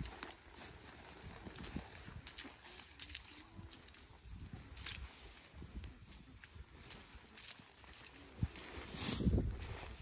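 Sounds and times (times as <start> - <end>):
rubber boots on muddy ground: 0.0 - 10.0.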